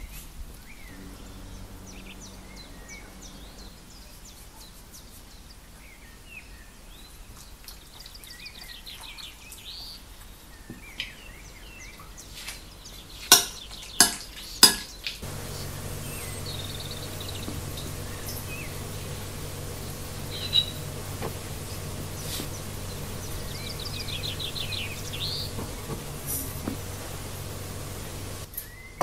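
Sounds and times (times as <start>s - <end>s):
birds chirping faintly: 0.0s - 29.0s.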